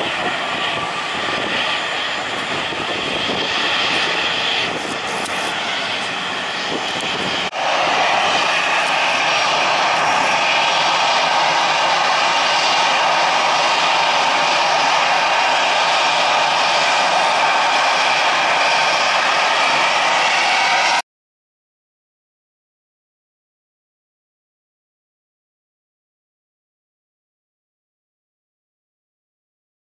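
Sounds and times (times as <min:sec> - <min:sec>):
airliner taxiing: 0:00.0 - 0:21.0
jet engine noise: 0:00.0 - 0:21.0.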